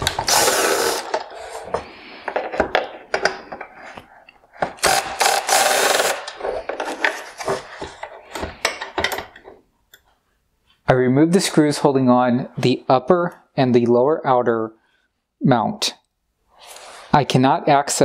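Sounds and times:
cordless drill running: 0.0 - 1.2, 4.8 - 6.3.

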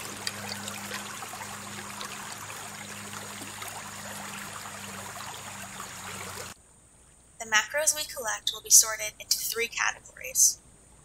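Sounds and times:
small clicks in water: 0.0 - 2.4
water rushing over rocks: 0.0 - 6.6.

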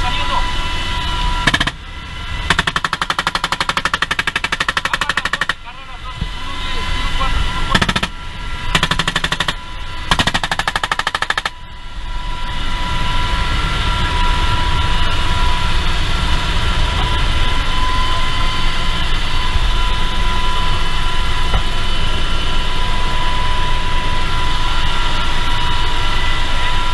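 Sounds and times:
constant whine: 0.0 - 26.9
helicopter engine and rotor: 0.0 - 26.9
machine-gun fire: 2.5 - 5.6, 8.8 - 11.5.

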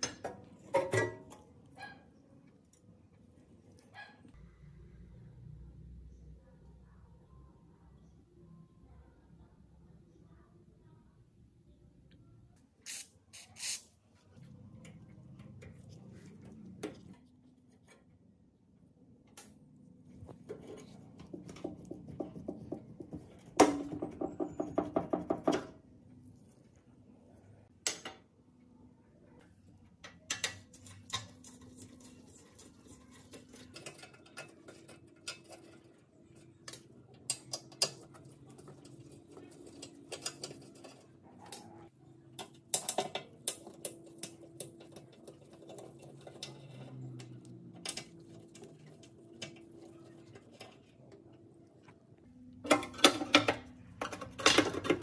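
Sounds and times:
screwdriver scraping metal: 12.9 - 13.9.

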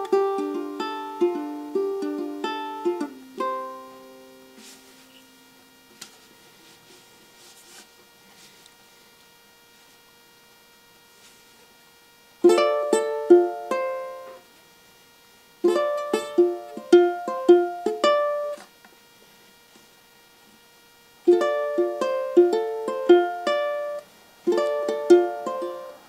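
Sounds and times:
ukulele fingerpicked: 0.0 - 5.1, 12.4 - 14.4, 15.6 - 18.7, 21.2 - 26.0.

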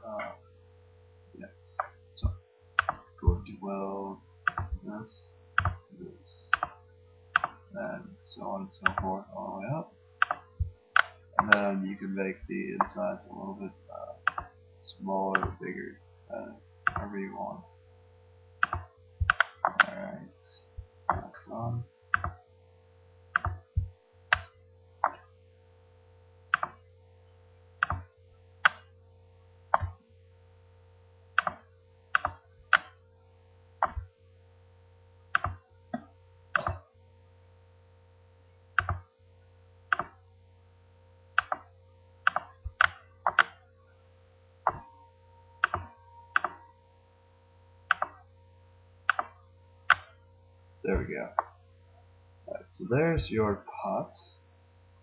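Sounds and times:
low electrical hum: 0.0 - 55.0
computer mouse clicking: 1.8 - 3.1, 4.5 - 4.8, 5.6 - 5.8, 6.5 - 6.8, 7.4 - 7.6, 8.8 - 9.1, 10.2 - 11.7, 14.2 - 14.5, 16.9 - 17.1, 18.6 - 20.0, 22.1 - 22.4, 23.4 - 23.6, 26.5 - 26.8, 27.8 - 28.9, 31.4 - 31.6, 32.2 - 33.0, 33.8 - 34.1, 35.3 - 36.8, 38.8 - 39.1, 39.9 - 40.2, 41.4 - 43.6, 44.7 - 44.9, 45.6 - 46.6, 47.9 - 48.2, 49.1 - 50.2.

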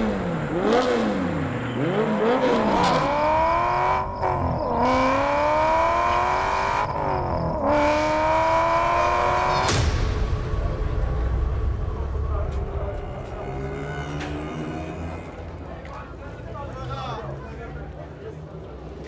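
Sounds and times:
car engine revving and accelerating: 0.0 - 9.8.

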